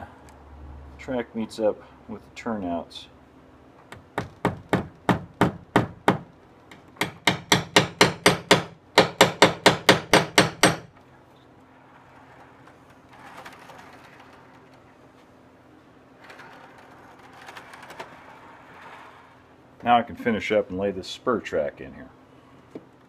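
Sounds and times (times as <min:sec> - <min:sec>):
hammer tapping small nails: 0:03.9 - 0:10.9.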